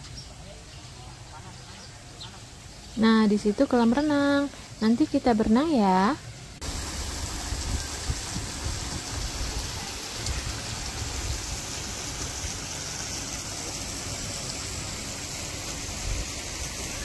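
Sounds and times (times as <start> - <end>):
running water rushing: 0.0 - 17.0
wind rumble on microphone: 6.6 - 11.6.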